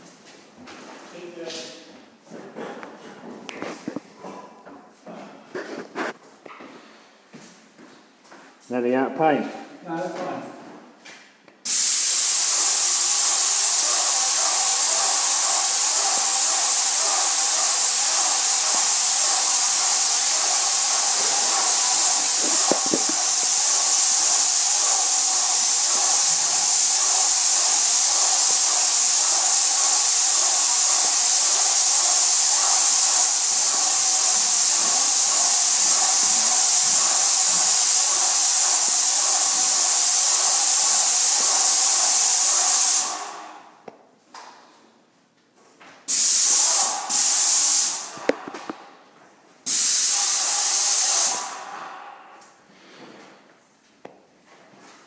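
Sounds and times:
paint sprayer hissing: 11.6 - 43.6, 46.1 - 48.9, 49.6 - 52.0.

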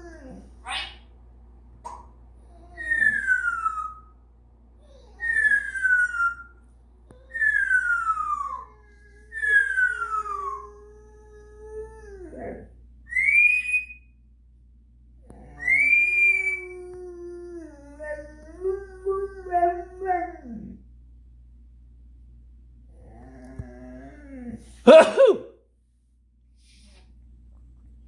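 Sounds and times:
dog howling: 2.7 - 4.1, 4.9 - 6.5, 7.2 - 14.0, 15.3 - 20.8
parrot whistling: 2.7 - 4.1, 5.2 - 6.5, 7.3 - 8.7, 9.3 - 10.6, 13.1 - 14.1, 15.6 - 16.7.

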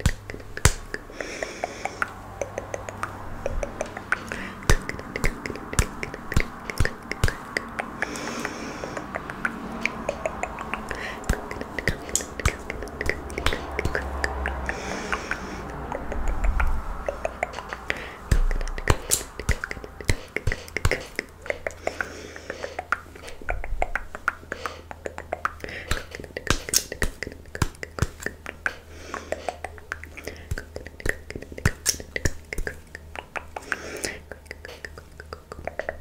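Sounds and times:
wet tongue clicks and pops: 0.0 - 1.1, 1.9 - 8.3, 9.0 - 14.7, 15.7 - 36.0
breathy hisses: 0.4 - 23.5, 24.5 - 25.0, 28.5 - 30.8, 33.6 - 35.0.

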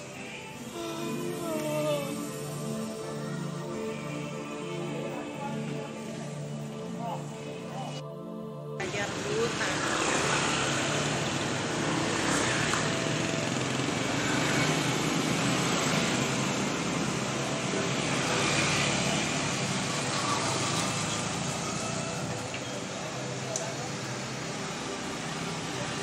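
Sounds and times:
motorbikes passing: 0.0 - 8.0, 8.8 - 26.0
cars passing: 8.8 - 26.0.

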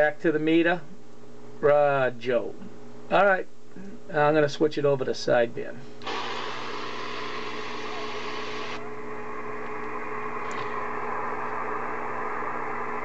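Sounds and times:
steady hum: 0.0 - 13.0
radio static hissing: 6.0 - 13.0.

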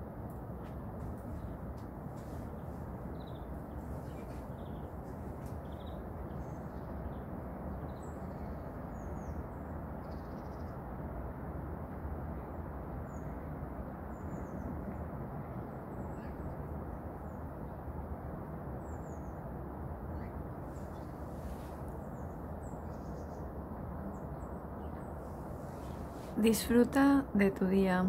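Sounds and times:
songbirds chirping: 0.4 - 10.9, 20.1 - 28.0.

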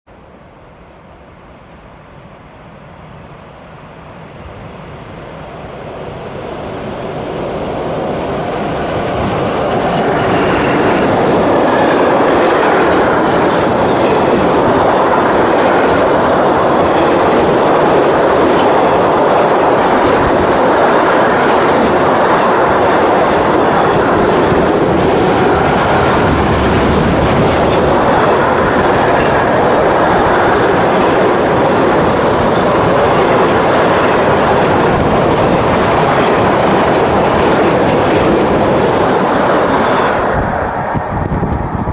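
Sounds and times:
freight train rumble: 0.1 - 41.9
wheels clacking over rail joints: 8.8 - 40.2.

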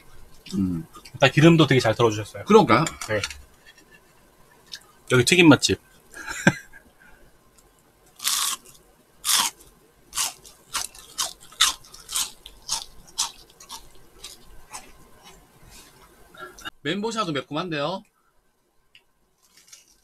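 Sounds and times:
crunchy chewing of fried food: 8.1 - 16.7, 19.4 - 20.0
crisp bite: 19.4 - 20.0.

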